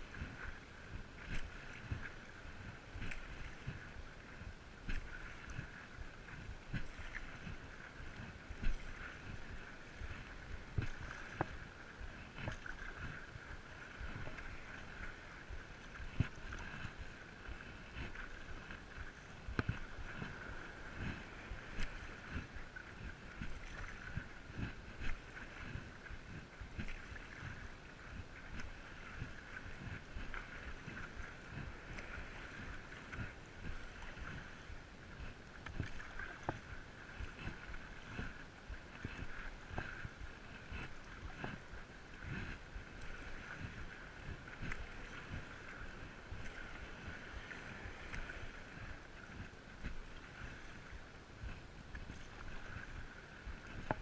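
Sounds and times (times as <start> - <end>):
paddle pulling through water: 0.0 - 54.0
water slapping against board: 2.9 - 3.9, 6.3 - 11.6, 17.9 - 34.5, 35.2 - 41.6, 53.7 - 54.0.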